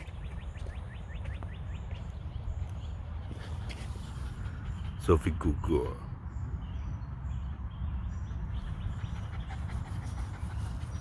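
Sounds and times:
dog panting: 3.2 - 5.4, 8.6 - 11.0.

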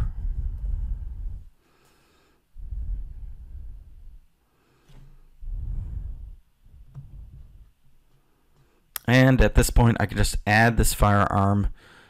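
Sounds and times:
person breathing: 0.0 - 6.8, 11.7 - 12.0.

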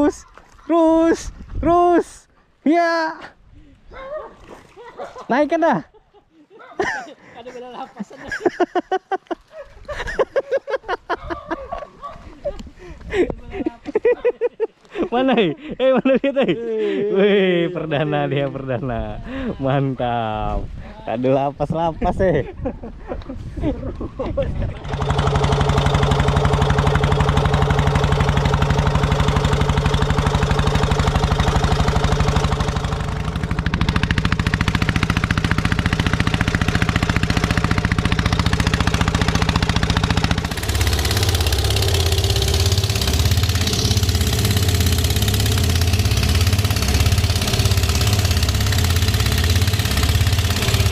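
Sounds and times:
engine running: 24.8 - 50.9.

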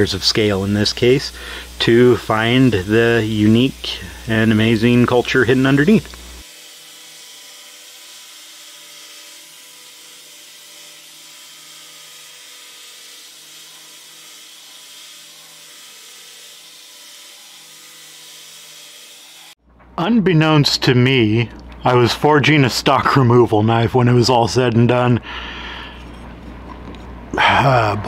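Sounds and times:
belt grinder whirring: 0.0 - 19.6.

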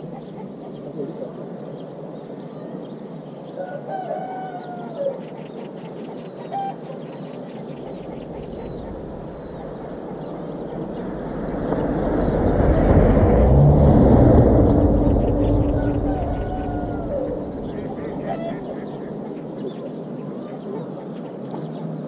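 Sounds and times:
small birds chirping: 4.6 - 13.2, 14.4 - 22.0
passing engine hum: 7.8 - 19.7.

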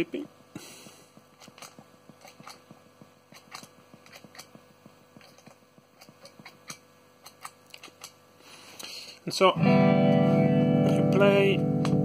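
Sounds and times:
faint steady hum: 0.0 - 12.0
footswitches clicking: 1.4 - 4.6.

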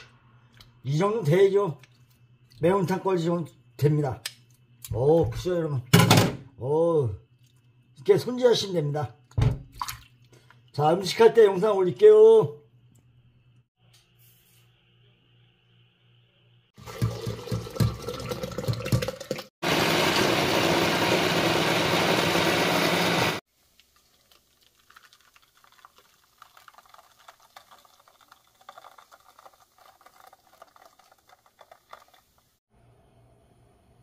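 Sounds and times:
broth pouring and splashing: 1.8 - 2.6, 9.7 - 10.7, 16.8 - 19.5, 23.5 - 32.6
blender grinding: 19.6 - 23.4
soup trickling through sieve: 23.5 - 32.5.

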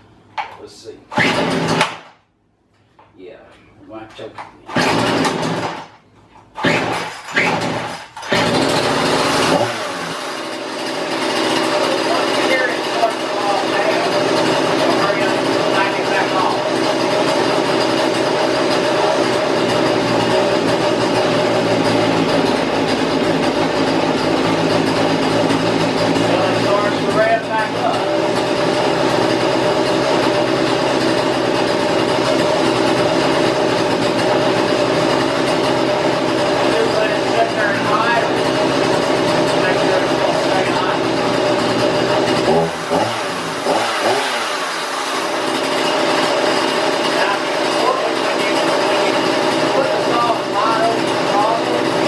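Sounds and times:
chainsaw engine pull-started: 1.1 - 2.1, 4.7 - 6.0, 6.6 - 52.0.

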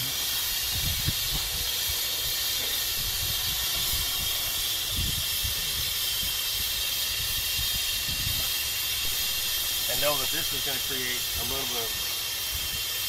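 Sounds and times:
compressed gas hissing: 0.0 - 13.0
wind rumble on microphone: 0.7 - 1.7, 2.9 - 9.7.

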